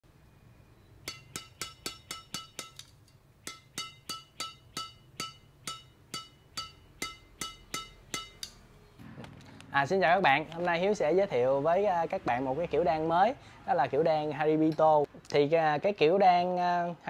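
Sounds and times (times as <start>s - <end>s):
sharp metallic clinks: 1.0s - 8.7s.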